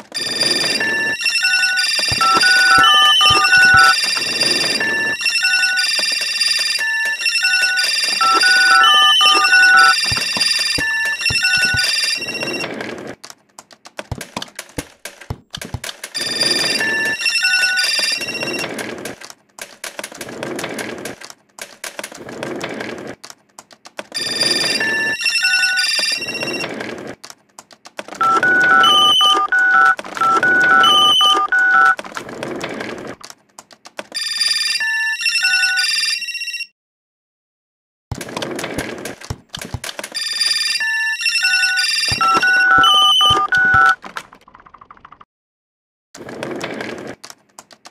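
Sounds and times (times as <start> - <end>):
beeped ringtone melody: 0.2 - 12.6, 16.2 - 18.6, 28.2 - 32.0, 40.2 - 44.0
electronic telephone ringing: 0.2 - 12.7, 16.2 - 18.7, 24.2 - 26.7, 28.2 - 32.0, 34.2 - 36.7, 40.1 - 44.0
clicking rustling noise: 46.2 - 47.9.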